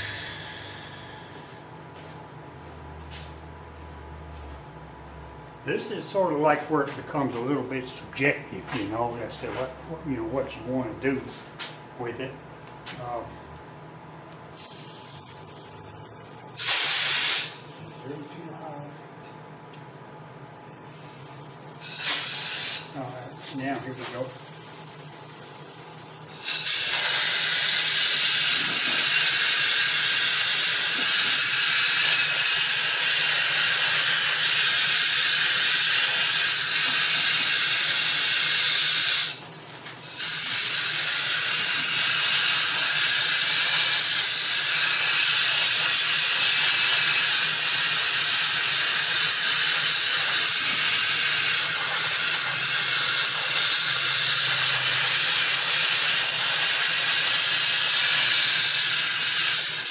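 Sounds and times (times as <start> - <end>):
air blow gun hissing: 0.0 - 1.5, 14.5 - 15.8, 16.6 - 18.9, 20.5 - 59.9.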